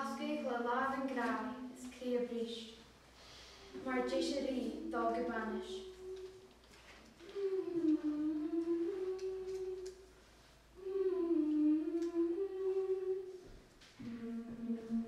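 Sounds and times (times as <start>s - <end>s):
woman humming a slow tune: 3.6s - 10.1s, 10.8s - 15.0s.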